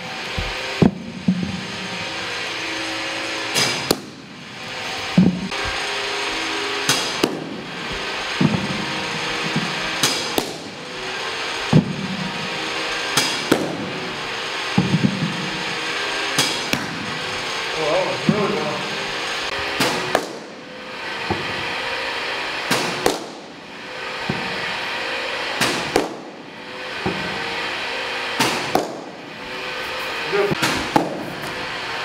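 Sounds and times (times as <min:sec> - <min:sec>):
steady background hum: 0:00.0 - 0:32.0
baseballs smacking into mitt: 0:03.6 - 0:04.2, 0:09.3 - 0:10.7, 0:16.4 - 0:17.0, 0:19.8 - 0:20.5, 0:22.7 - 0:23.4, 0:25.6 - 0:26.3, 0:28.4 - 0:29.1, 0:30.6 - 0:31.5.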